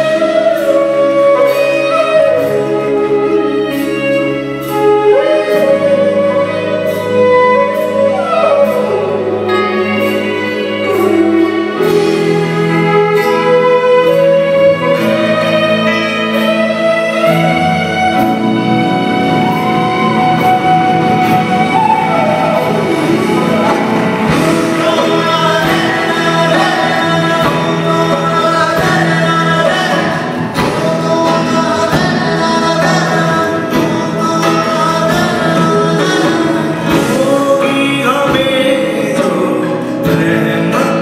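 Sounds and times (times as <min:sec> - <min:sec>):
bass: 0:00.0 - 0:41.0
keyboards: 0:00.0 - 0:41.0
live band music in concert hall: 0:00.0 - 0:41.0
sliding melody lines: 0:00.0 - 0:41.0
steady drum beat: 0:17.2 - 0:41.0.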